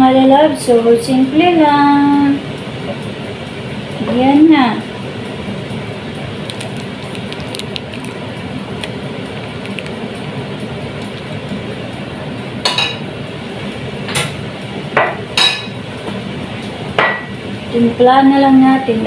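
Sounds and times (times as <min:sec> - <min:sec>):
soup bubbling: 0:06.3 - 0:11.9
wooden spoon stirring pot: 0:06.4 - 0:11.5.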